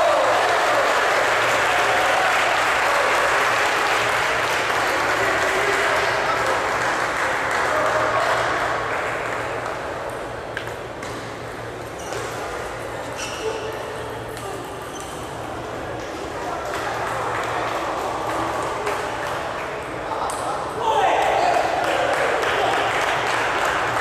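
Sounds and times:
crowd applauding and cheering: 0.0s - 9.5s, 21.6s - 24.0s.

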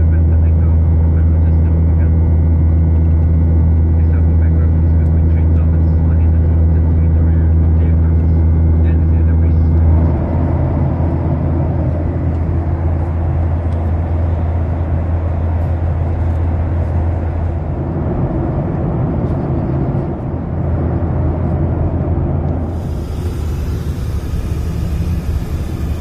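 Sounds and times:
jet engine hum: 0.0s - 26.0s
rush of airflow: 22.1s - 26.0s.

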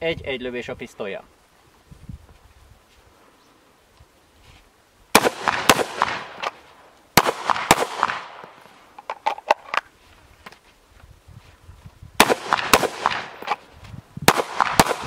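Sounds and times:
pistol shots: 5.1s - 6.6s, 7.2s - 8.5s, 12.2s - 13.6s, 14.3s - 15.0s
rifle gunshots: 5.1s - 6.6s, 7.2s - 8.6s, 12.2s - 13.6s, 14.3s - 15.0s.

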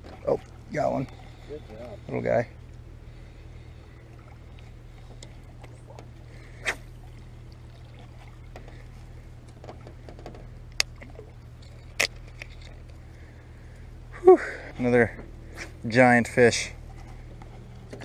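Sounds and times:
faint water splashing: 0.0s - 18.0s
steady low hum: 0.0s - 18.0s
sharp short pops: 6.6s - 6.9s.

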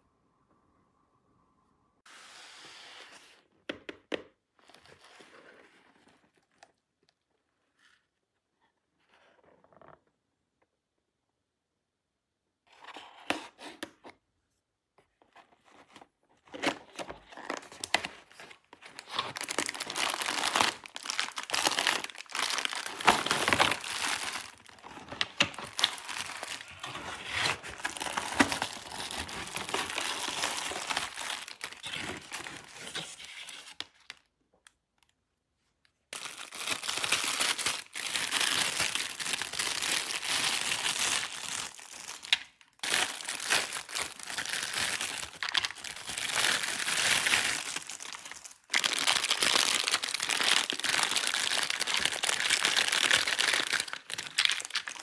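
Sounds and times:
packaging crinkling and tearing: 16.4s - 34.3s, 36.1s - 55.0s.

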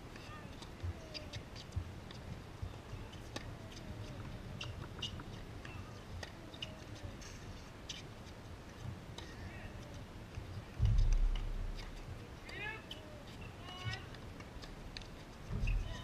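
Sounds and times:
shoe squeaks: 3.0s - 8.1s, 12.7s - 14.0s, 15.6s - 16.0s.

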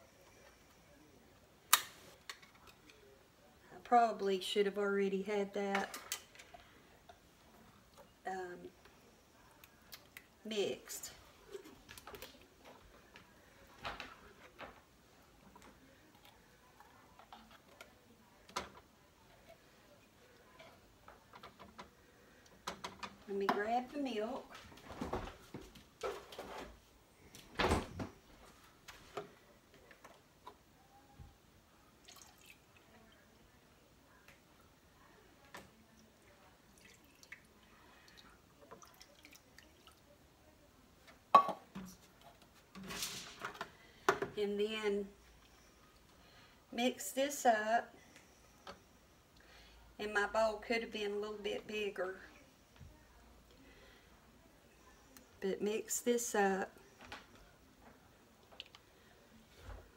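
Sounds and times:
milk pouring into a bowl: 32.0s - 33.2s, 36.7s - 40.1s.

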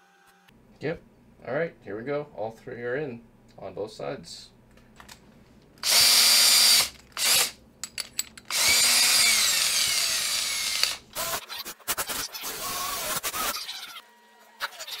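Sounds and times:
cordless drill motor: 5.8s - 7.6s, 8.5s - 11.4s.

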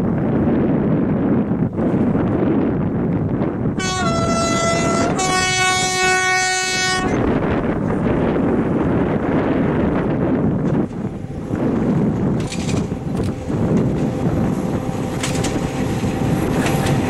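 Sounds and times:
wind on microphone: 0.0s - 17.0s
railcar two-tone horn: 3.8s - 7.4s.

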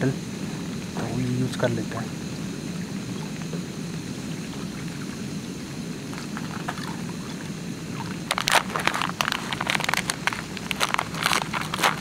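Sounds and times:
plastic packet crinkling: 8.3s - 12.0s.

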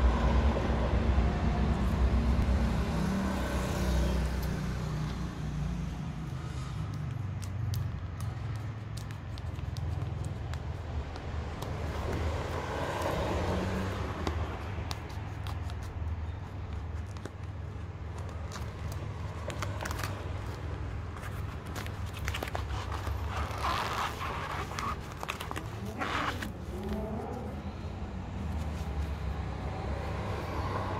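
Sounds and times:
steady low rumble: 0.0s - 8.1s
plastic packaging crackling: 16.9s - 26.8s.

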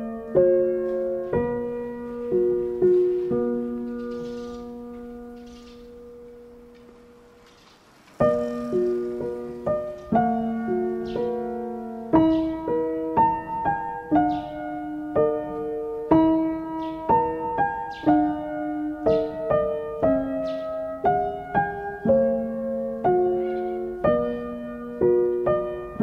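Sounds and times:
slow piano melody: 0.0s - 26.0s.

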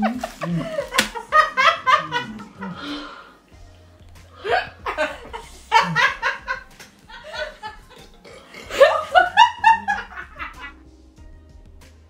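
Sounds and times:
woman laughing: 0.0s - 3.2s, 4.4s - 10.8s.

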